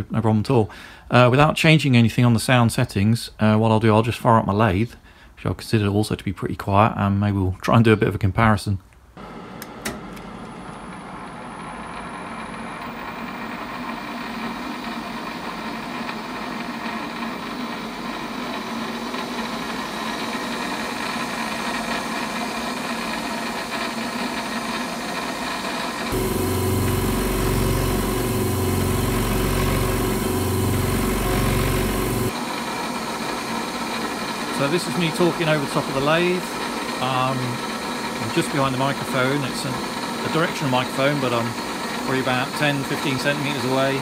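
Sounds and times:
metal lathe motor humming: 0:09.2 - 0:33.0
air compressor pumping: 0:13.2 - 0:32.4.

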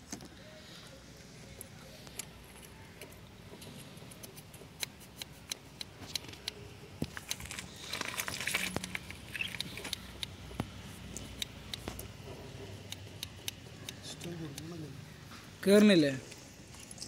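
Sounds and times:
small metallic clicks: 0:02.0 - 0:10.3
rustling scrape: 0:07.1 - 0:09.2.

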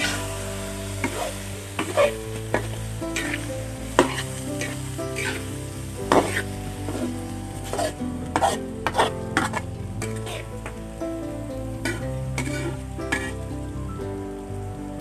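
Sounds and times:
food sizzling in a wok: 0:00.0 - 0:11.0, 0:11.8 - 0:14.5
spatula scraping and knocking wok: 0:06.1 - 0:07.1.

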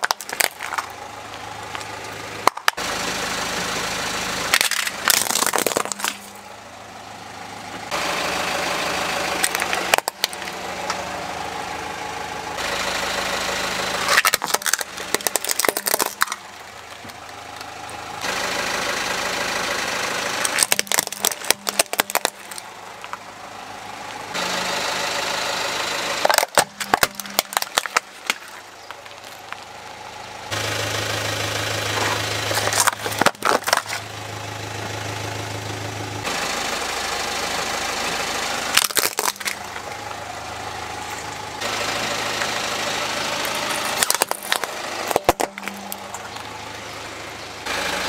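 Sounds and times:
plastic toys cracking and snapping: 0:00.0 - 0:01.0, 0:01.8 - 0:02.8, 0:04.5 - 0:06.4, 0:09.4 - 0:11.0, 0:14.1 - 0:17.7, 0:20.4 - 0:23.2, 0:26.2 - 0:29.7, 0:32.5 - 0:34.0, 0:38.7 - 0:39.9, 0:43.5 - 0:46.5
car engine idling: 0:00.0 - 0:48.0.

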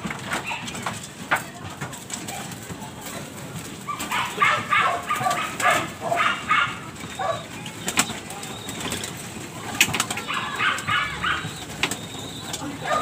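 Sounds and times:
dog barking: 0:03.9 - 0:07.5, 0:10.2 - 0:11.6, 0:12.8 - 0:13.0.

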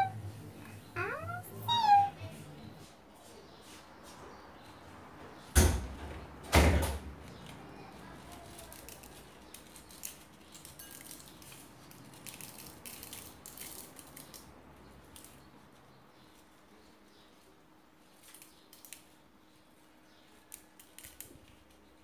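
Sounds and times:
faint clicks and crackles: 0:07.2 - 0:15.7, 0:18.0 - 0:19.6, 0:20.2 - 0:22.0.

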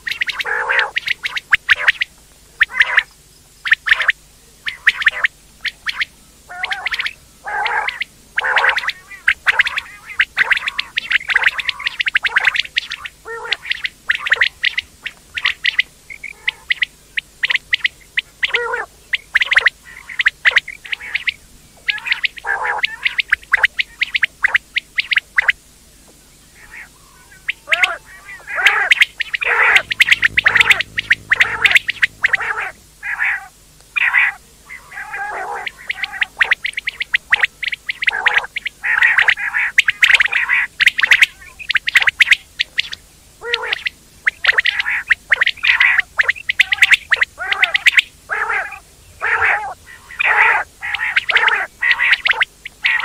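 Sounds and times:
quail calling: 0:00.0 - 0:25.6, 0:26.6 - 0:53.0.

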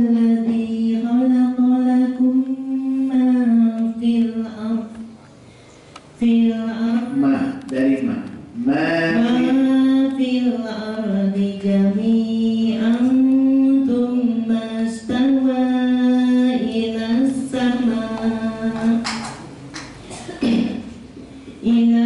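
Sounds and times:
woman chanting melodically: 0:00.0 - 0:05.2, 0:06.2 - 0:07.3, 0:09.1 - 0:19.4, 0:21.6 - 0:22.0.

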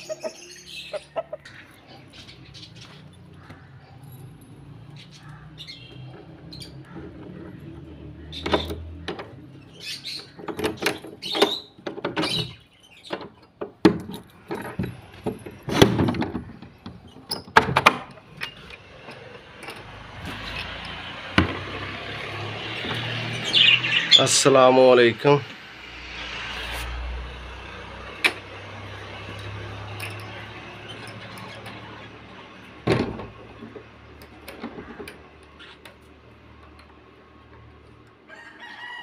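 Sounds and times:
faint birds chirping: 0:00.0 - 0:13.5
padlock and bolt clanking: 0:10.5 - 0:21.7.

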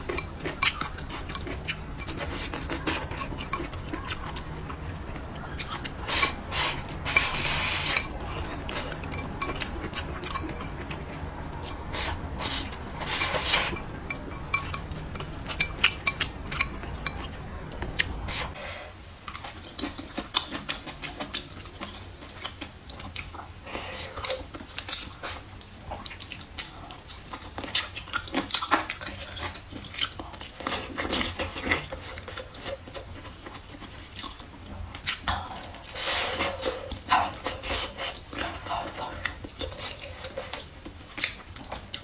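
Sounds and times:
wet chewing and biting: 0:00.0 - 0:18.6.

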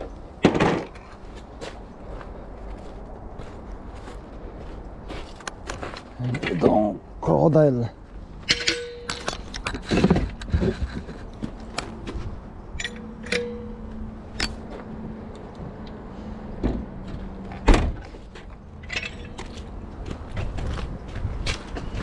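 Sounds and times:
metal clanks and clicks: 0:08.4 - 0:11.1, 0:12.8 - 0:14.7, 0:18.8 - 0:19.7.

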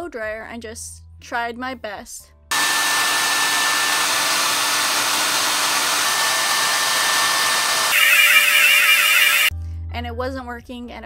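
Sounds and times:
hair dryer running: 0:02.5 - 0:09.5.

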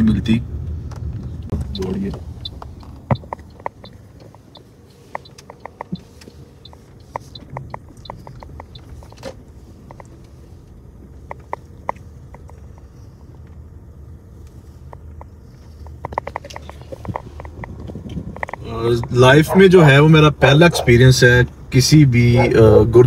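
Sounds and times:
car cabin rumble: 0:00.0 - 0:23.0
light clicks and rattles: 0:14.8 - 0:19.2.

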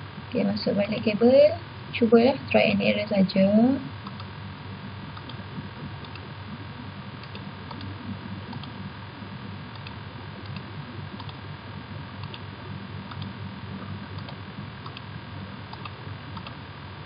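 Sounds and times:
low room hum: 0:00.0 - 0:17.0
faint mouse clicks: 0:04.0 - 0:04.3, 0:09.7 - 0:11.4, 0:13.1 - 0:13.3, 0:14.2 - 0:15.1, 0:15.7 - 0:16.6.

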